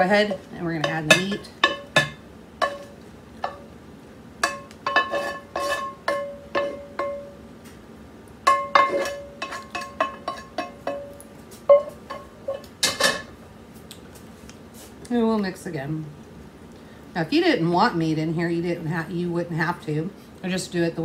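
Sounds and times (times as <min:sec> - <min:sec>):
spatula knocking metal bowl: 0:00.8 - 0:03.6, 0:04.4 - 0:07.4, 0:08.5 - 0:13.1.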